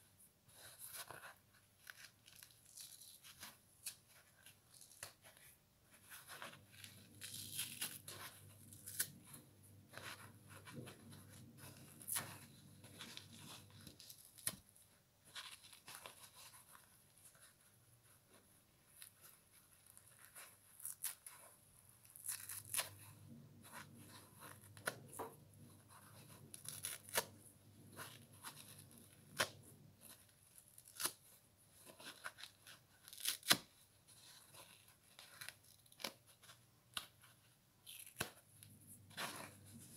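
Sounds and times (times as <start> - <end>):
sponge tearing: 6.2 - 9.4, 22.0 - 23.1, 26.4 - 27.4, 30.4 - 33.7.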